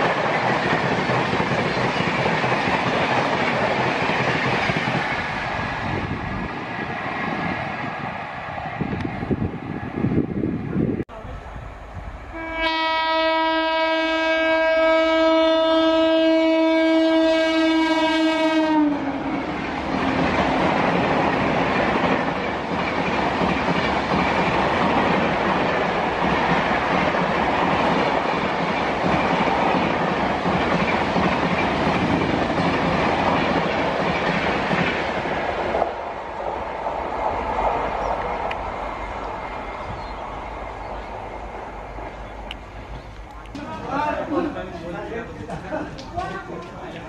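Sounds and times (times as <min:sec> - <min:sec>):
train wheels clattering on rails: 0:00.0 - 0:08.2, 0:19.3 - 0:36.0, 0:37.3 - 0:44.1
locomotive horn: 0:12.3 - 0:19.5.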